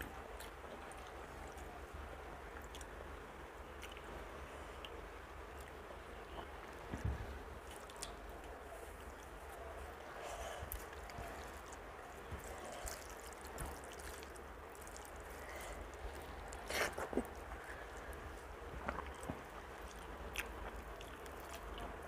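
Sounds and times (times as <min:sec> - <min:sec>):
chewing and wet mouth sounds: 0:02.5 - 0:03.0, 0:03.6 - 0:06.8, 0:07.6 - 0:22.0
fingers squishing wet rice: 0:07.6 - 0:22.0.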